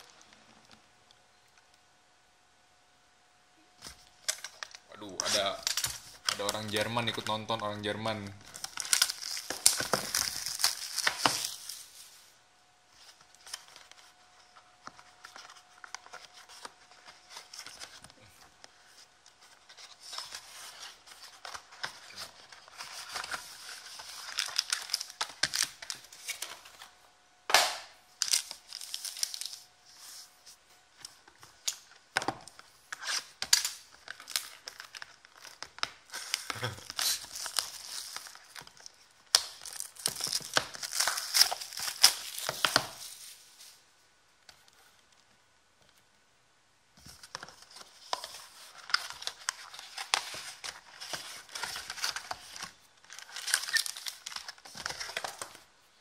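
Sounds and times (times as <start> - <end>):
plastic wrap tearing and crinkling: 3.9 - 7.5, 8.4 - 12.1, 19.5 - 26.9, 27.6 - 29.7, 31.1 - 43.5, 47.2 - 55.7.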